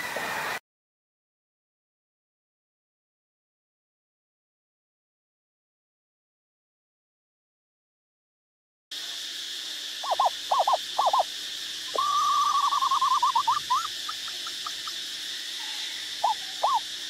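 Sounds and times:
high insect hiss: 0:08.9 - 0:17.0
owlet calling: 0:10.0 - 0:11.3, 0:11.9 - 0:17.0.

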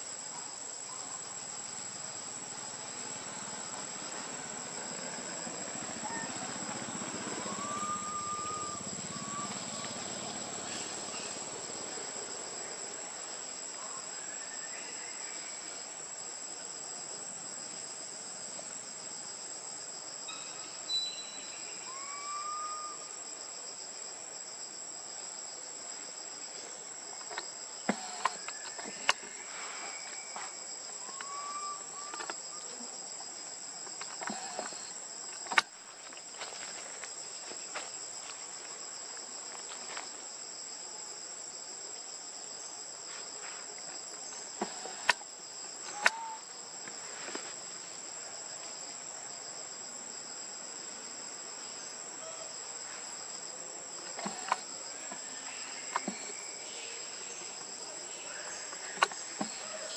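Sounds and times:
high-pitched insect drone: 0:20.3 - 0:23.2
sharp clicks: 0:54.1 - 0:55.2.

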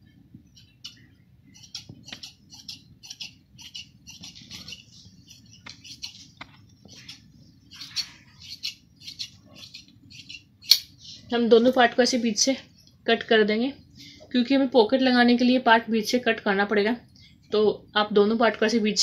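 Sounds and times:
scissors snipping cloth: 0:01.6 - 0:04.8.

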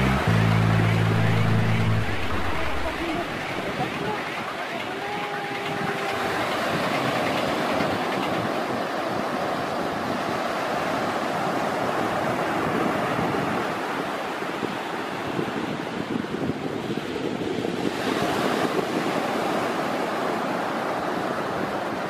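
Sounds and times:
faint high whine: 0:00.0 - 0:03.7
sea surf washing over shallow water: 0:00.0 - 0:22.0.

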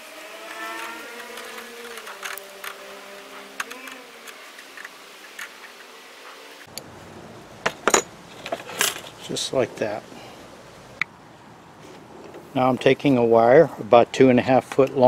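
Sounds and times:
motor drone: 0:00.0 - 0:07.2.

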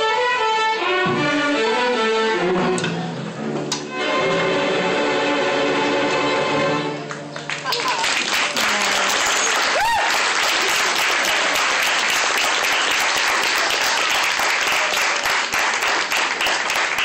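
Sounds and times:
audience applauding: 0:07.0 - 0:17.0.

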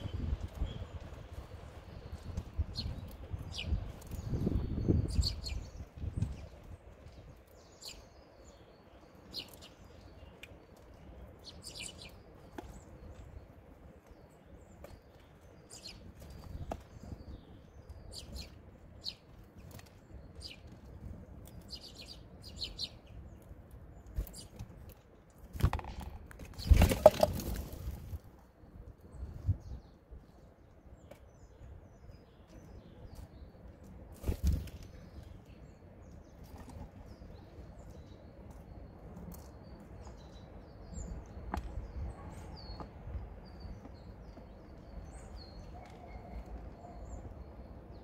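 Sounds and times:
songbirds chirping: 0:00.0 - 0:48.0
squirrel scrabbling on wooden tray: 0:25.5 - 0:28.0.

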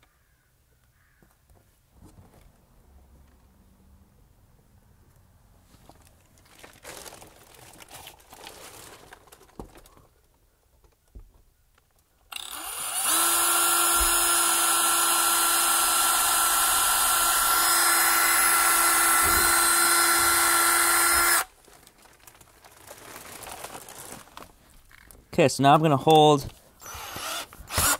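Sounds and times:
cordless drill whining: 0:12.3 - 0:21.5, 0:26.8 - 0:27.9.

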